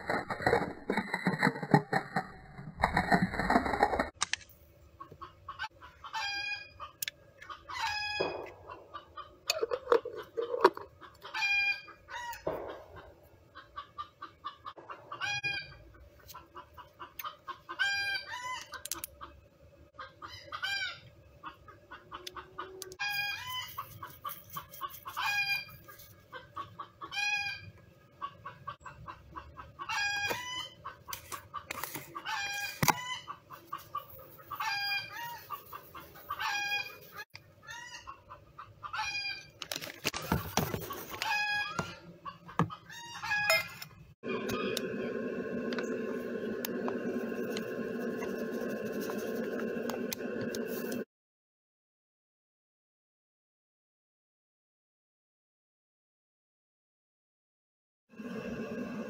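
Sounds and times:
chickens clucking: 0:04.9 - 0:39.6, 0:40.3 - 0:43.7.

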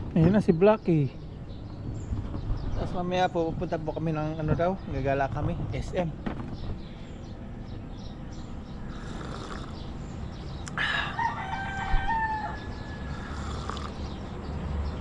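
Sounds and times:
rooster crowing: 0:10.8 - 0:13.7.

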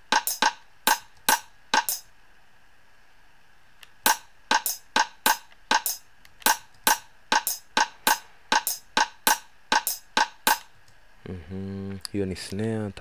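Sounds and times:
drum machine rimshot pattern: 0:00.0 - 0:02.1, 0:04.0 - 0:10.7.

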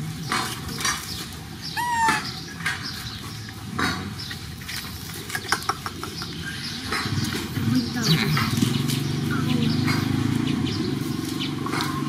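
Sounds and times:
young animal squeak: 0:01.7 - 0:02.6.

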